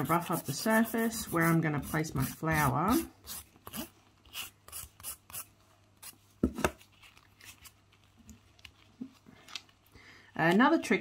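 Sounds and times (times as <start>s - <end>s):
nail file rubbing nail: 0.1s - 6.2s.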